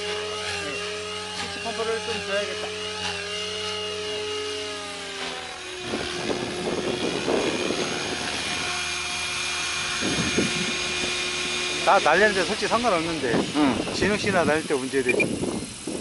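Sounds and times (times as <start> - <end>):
helicopter motor whine: 0.0 - 16.0
rotor blades swishing: 0.0 - 16.0.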